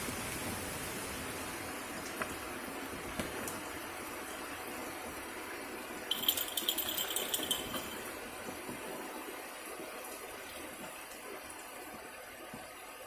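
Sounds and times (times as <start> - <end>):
rain hissing: 0.0 - 13.0
rapid high-pitched rattling: 6.1 - 8.2.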